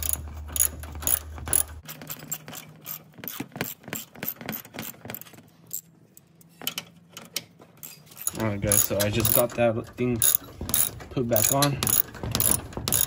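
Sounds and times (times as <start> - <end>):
ratchet clicking: 7.8 - 9.6, 10.2 - 13.0.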